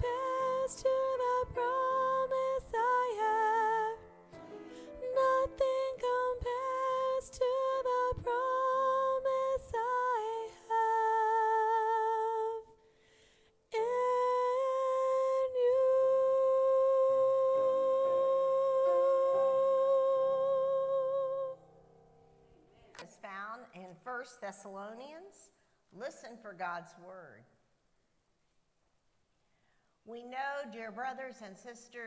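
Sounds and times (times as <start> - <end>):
woman singing long held notes: 0.0 - 4.0, 4.7 - 12.8, 13.7 - 21.6.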